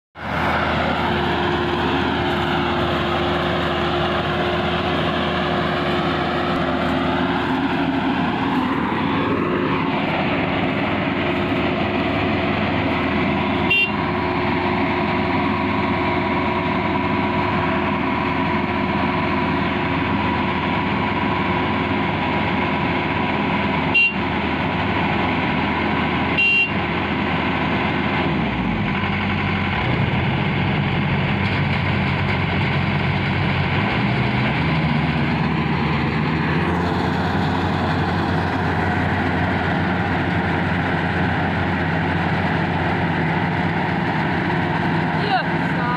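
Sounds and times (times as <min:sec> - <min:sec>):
combine harvester engine drone: 0:00.2 - 0:45.9.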